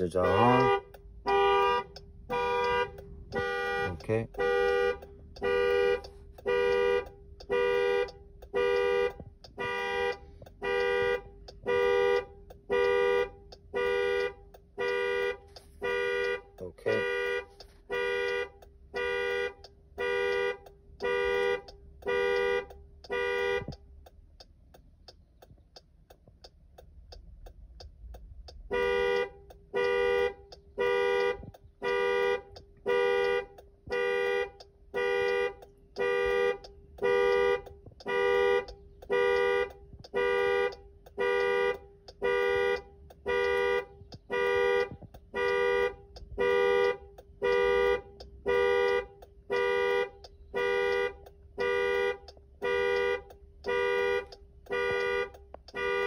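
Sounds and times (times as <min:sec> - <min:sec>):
car horn alarm pulses: 0:00.0 - 0:24.2, 0:28.4 - 0:56.0
faint ticking: 0:00.0 - 0:56.0.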